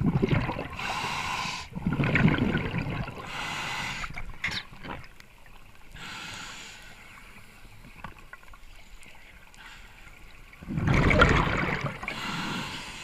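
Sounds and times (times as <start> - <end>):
bubbling exhaust underwater: 0.0 - 5.1, 10.6 - 13.0
hissing regulator inhale: 0.8 - 1.7, 3.3 - 4.2, 6.0 - 7.2, 12.1 - 13.0.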